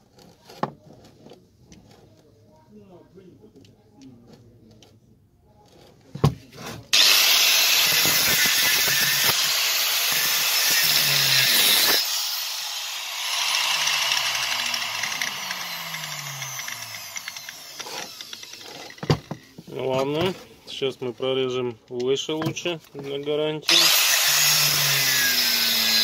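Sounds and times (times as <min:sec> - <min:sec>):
angle grinder cutting metal: 0:06.9 - 0:19.0, 0:23.6 - 0:26.0.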